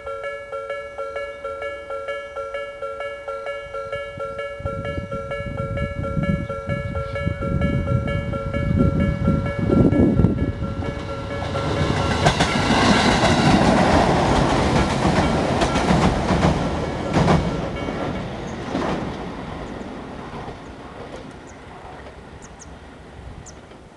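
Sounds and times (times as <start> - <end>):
crossing warning bell ringing: 0.0 - 20.0
electric train running: 0.0 - 23.8
wheels clicking over rail joints: 5.6 - 22.8, 23.4 - 23.9.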